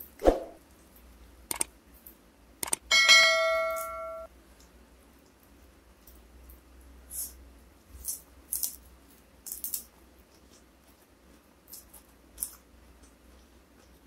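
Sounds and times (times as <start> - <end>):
sharp clicks: 1.5 - 1.7, 2.6 - 2.9
bell-like notification ding: 2.9 - 4.3.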